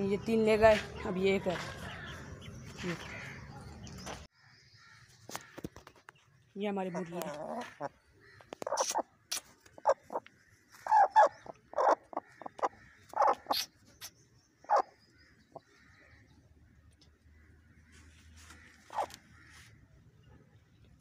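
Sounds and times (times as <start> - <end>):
hen squawking: 8.6 - 9.1, 9.8 - 10.2, 10.8 - 13.8, 14.7 - 14.9, 18.9 - 19.2.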